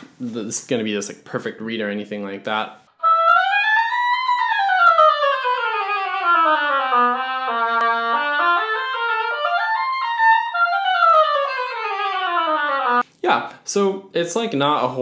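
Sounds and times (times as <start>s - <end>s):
person talking: 0.1s - 2.8s, 13.1s - 15.0s
oboe playing quick runs: 3.0s - 13.0s.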